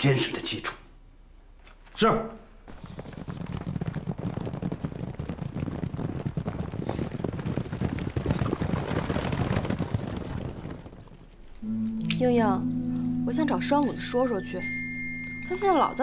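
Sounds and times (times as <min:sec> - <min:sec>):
horses galloping on hard ground: 0:02.7 - 0:11.5.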